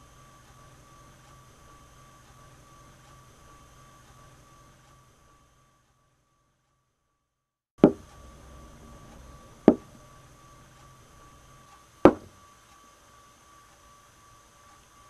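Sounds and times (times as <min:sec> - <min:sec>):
faint steady hum: 0:00.0 - 0:06.9, 0:07.8 - 0:15.0
sharp ringing knocks: 0:07.8 - 0:08.1, 0:09.7 - 0:09.9, 0:12.1 - 0:12.4.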